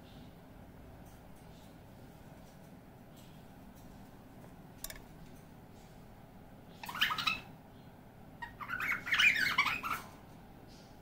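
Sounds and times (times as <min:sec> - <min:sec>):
cockatiel calls: 0:06.8 - 0:07.5, 0:08.4 - 0:10.1.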